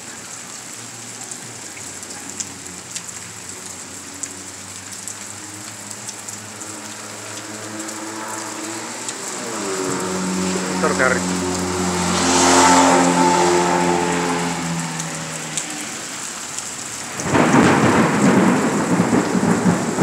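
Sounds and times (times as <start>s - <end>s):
car driving on wet street: 0.0s - 20.0s
rain on pavement and puddles: 0.0s - 20.0s
water drops ticking: 1.7s - 12.2s, 13.0s - 17.3s.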